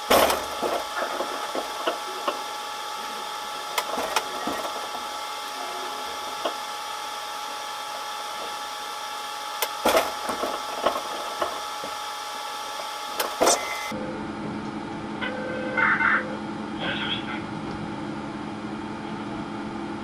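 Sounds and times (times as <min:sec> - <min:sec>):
train electrical hum: 0:00.0 - 0:20.0.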